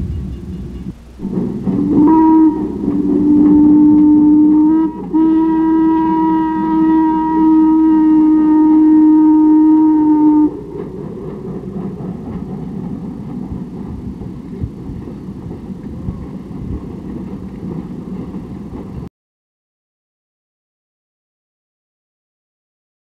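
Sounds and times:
steam locomotive whistle: 0:00.0 - 0:14.8
low thumps: 0:00.0 - 0:19.0
train running rumble: 0:00.0 - 0:19.1.

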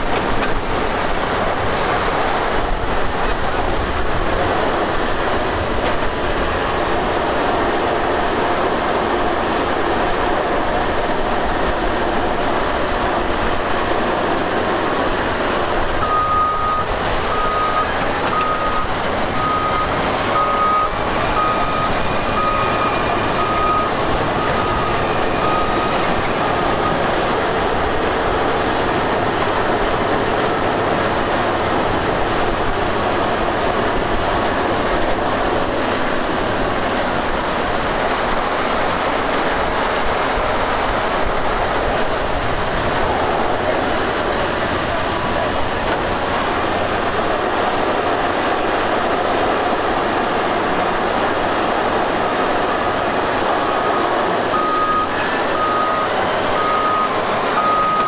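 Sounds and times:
steel tracks clattering: 0:00.0 - 0:16.1, 0:16.8 - 0:58.0
diesel engine under load: 0:00.0 - 0:58.0
reversing alarm beeping: 0:16.0 - 0:27.2, 0:52.2 - 0:58.0.

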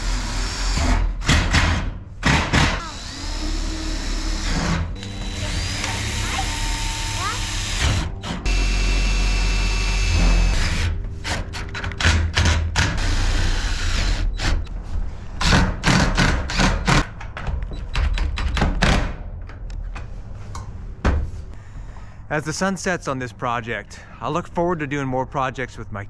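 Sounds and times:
cordless drill running: 0:02.8 - 0:10.9.

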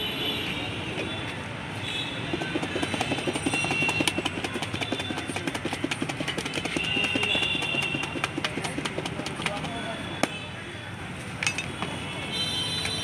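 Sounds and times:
street traffic: 0:00.0 - 0:13.0
plastic jar rattling when shaken: 0:02.3 - 0:10.0.

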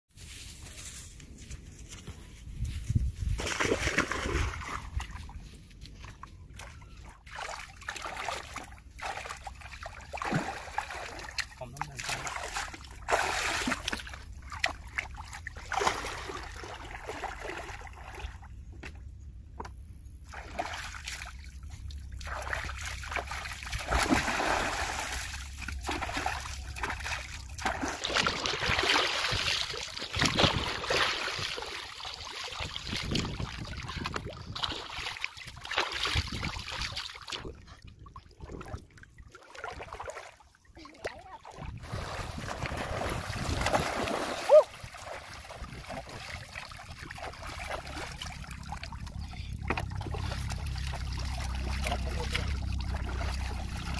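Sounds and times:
water splashing and sloshing: 0:02.8 - 0:53.9.

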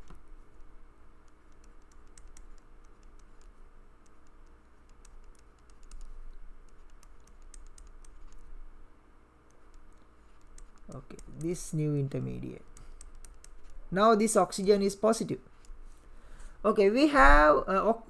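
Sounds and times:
low steady hum: 0:00.0 - 0:18.0
stylus tapping on drawing tablet: 0:01.3 - 0:08.5, 0:09.5 - 0:11.6.

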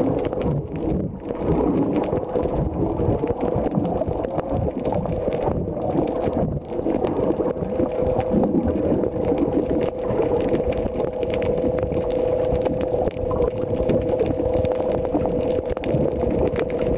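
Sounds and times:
boat engine underwater drone: 0:00.0 - 0:16.9
water rumble: 0:00.0 - 0:16.9.

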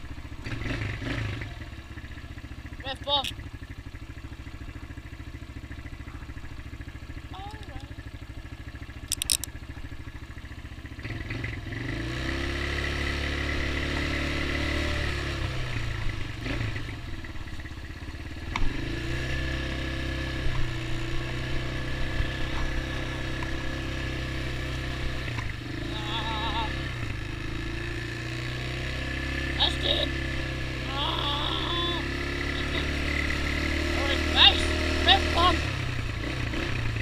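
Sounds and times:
small atv engine revving: 0:00.0 - 0:37.0
sharp click: 0:09.0 - 0:09.5.

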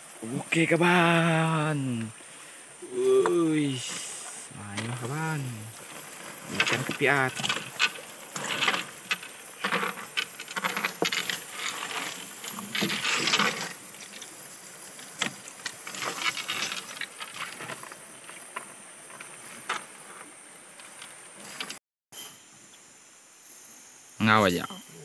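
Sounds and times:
rustling and clattering handling: 0:05.8 - 0:21.8.

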